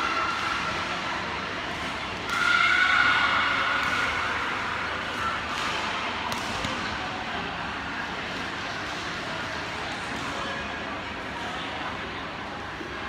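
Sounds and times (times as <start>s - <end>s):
racket hitting shuttlecock: 0.1s - 0.9s, 3.5s - 4.4s, 5.5s - 7.0s.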